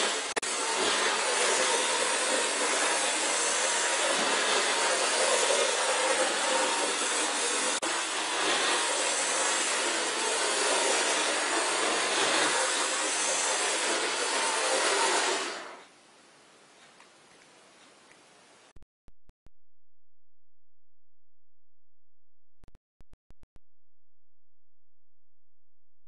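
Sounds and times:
model train motor whirring on track: 0.0 - 15.9.

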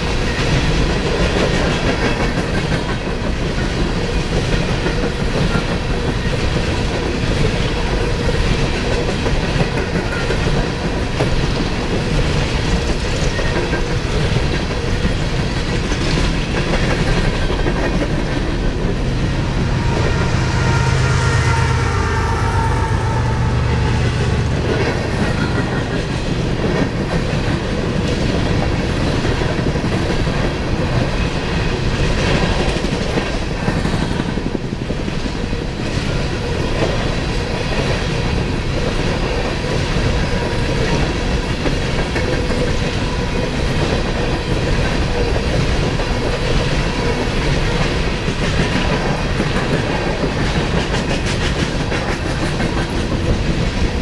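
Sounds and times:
diesel locomotive passing: 0.0 - 54.0
train wheels rushing: 0.0 - 54.0.

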